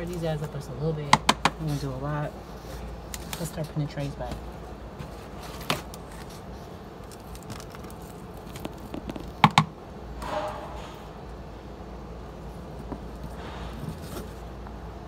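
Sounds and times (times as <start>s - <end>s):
sharp knocks: 9.0s - 11.1s.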